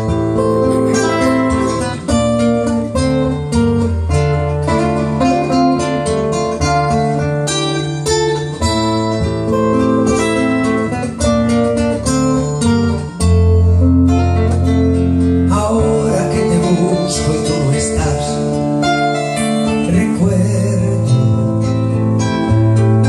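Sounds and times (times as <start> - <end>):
acoustic guitars playing: 0.0 - 23.0
man singing: 15.5 - 18.7, 19.7 - 21.7.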